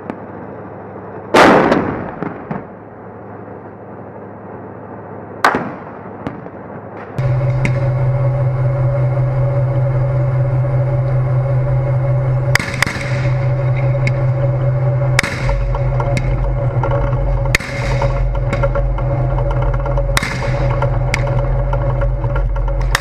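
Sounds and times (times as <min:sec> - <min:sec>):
tank engine droning: 0:00.0 - 0:23.0
sharp gunfire bangs: 0:01.4 - 0:02.7.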